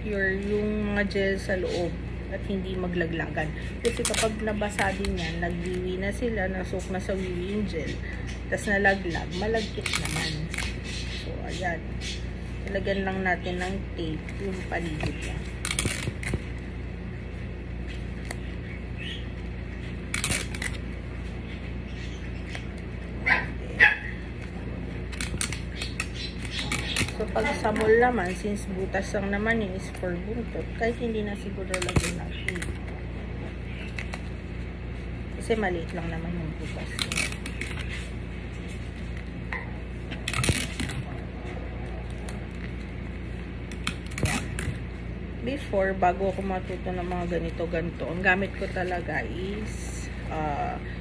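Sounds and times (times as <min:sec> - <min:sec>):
low hum: 0:00.0 - 0:51.0
plastic diaper crinkling: 0:03.8 - 0:05.8, 0:14.2 - 0:16.7, 0:19.4 - 0:21.0, 0:25.1 - 0:28.4, 0:31.6 - 0:32.9, 0:36.6 - 0:38.2, 0:40.0 - 0:41.2, 0:42.0 - 0:44.9
dog barking: 0:23.2 - 0:24.2.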